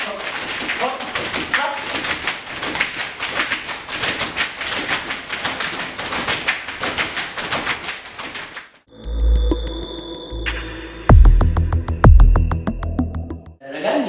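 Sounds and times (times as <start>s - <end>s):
feet stamping on tiled floor: 0.0s - 8.8s.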